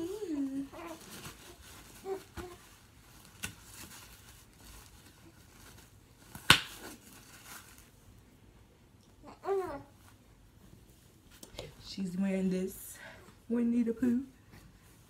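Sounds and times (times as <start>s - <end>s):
diaper rustling and crinkling: 0.0s - 8.2s.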